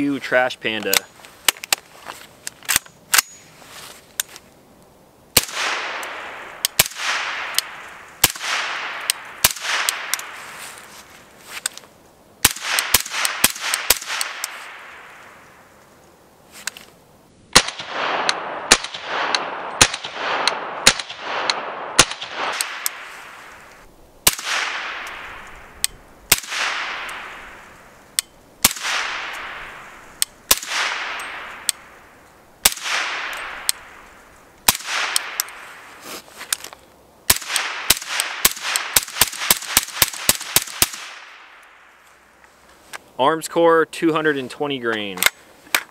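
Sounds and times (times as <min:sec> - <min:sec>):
suppressed rifle shots: 0:05.4 - 0:10.4, 0:12.4 - 0:15.3, 0:17.5 - 0:27.9, 0:28.6 - 0:35.9, 0:37.3 - 0:41.6.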